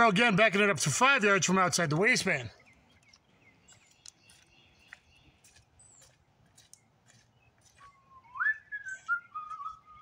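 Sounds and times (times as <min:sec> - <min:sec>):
footsteps crunching on gravel: 0:02.2 - 0:10.0
person whistling a tune: 0:08.0 - 0:10.0.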